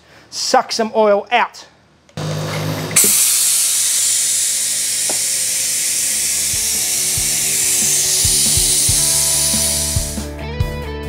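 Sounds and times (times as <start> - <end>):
vacuum bleeder hissing: 2.2 - 10.3.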